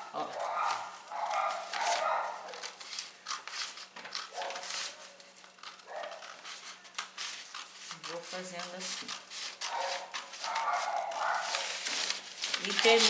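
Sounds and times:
paper rustling: 0:00.0 - 0:13.0
scissors snipping paper: 0:00.2 - 0:13.0.

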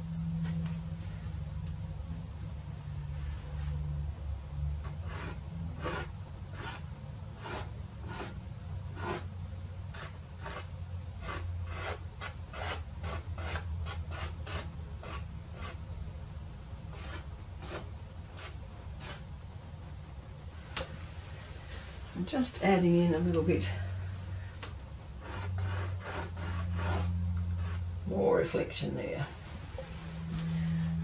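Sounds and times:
pastel stick rasping on paper: 0:04.8 - 0:08.4, 0:09.0 - 0:09.3, 0:09.9 - 0:15.8, 0:16.9 - 0:19.2, 0:25.2 - 0:27.8.

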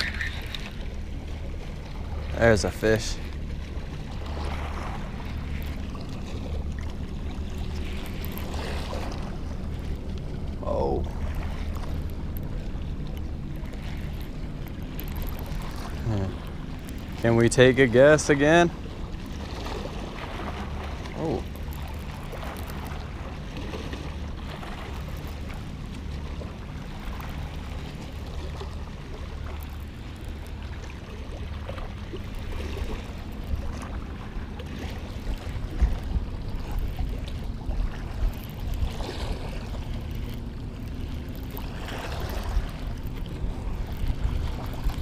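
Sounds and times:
small waves washing against rocks: 0:00.0 - 0:45.0
wind rumble on microphone: 0:00.0 - 0:45.0.

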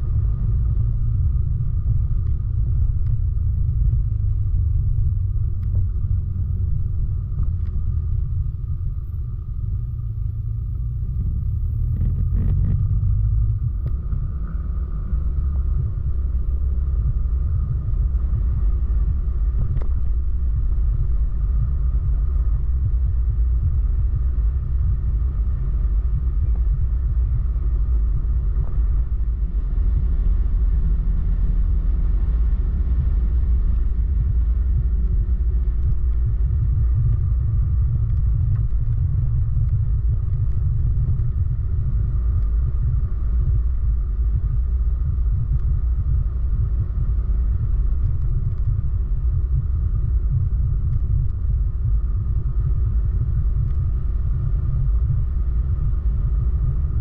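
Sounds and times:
vehicle engine: 0:00.0 - 0:57.0
wind noise: 0:00.0 - 0:57.0.

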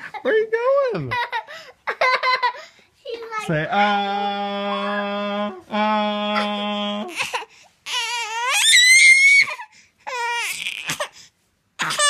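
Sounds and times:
baby crying: 0:03.7 - 0:11.2, 0:11.8 - 0:12.0.

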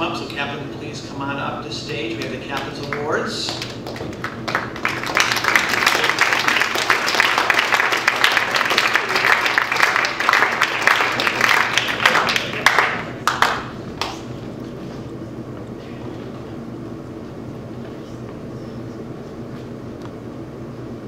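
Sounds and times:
audience applauding: 0:02.2 - 0:14.2.

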